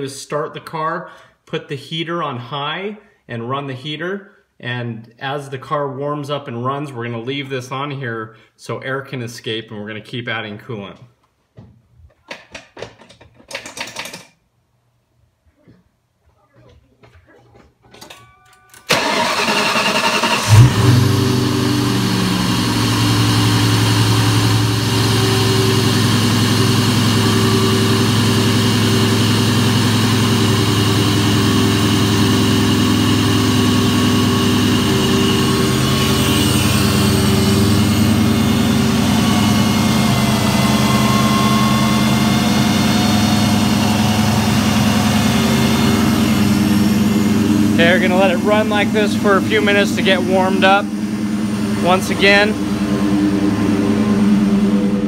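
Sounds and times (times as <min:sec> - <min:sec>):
engine starter cranking: 0:18.8 - 0:21.4
car engine idling: 0:18.9 - 0:55.0.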